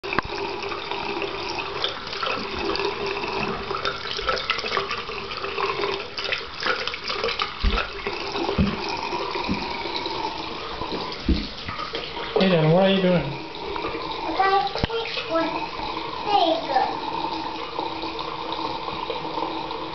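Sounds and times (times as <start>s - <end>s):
tap water running into sink: 0.0s - 19.9s
soft handling thumps: 10.9s - 11.9s.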